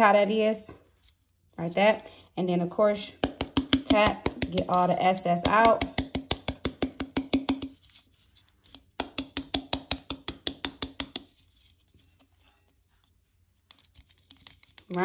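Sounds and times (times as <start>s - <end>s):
rapid tapping on ornament ball: 3.1s - 7.8s, 8.9s - 11.3s.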